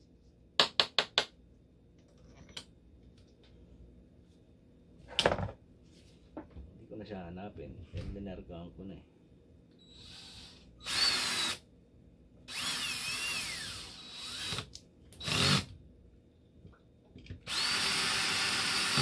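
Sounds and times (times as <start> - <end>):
cordless drill whining: 9.8 - 11.6, 12.5 - 15.7, 17.4 - 19.0.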